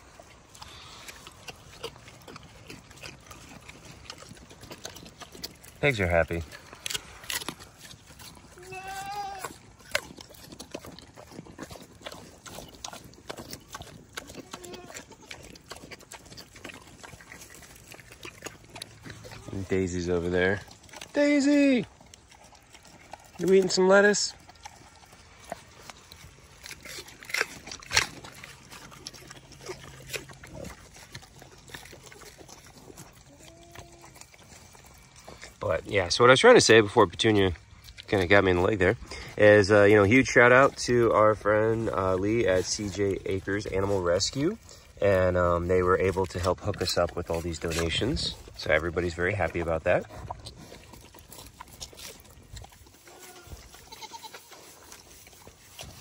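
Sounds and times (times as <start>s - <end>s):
pigs munching lettuce: 0.0s - 56.0s
faint goat bleat: 8.6s - 9.6s, 14.4s - 15.3s, 33.3s - 34.2s, 53.0s - 54.7s.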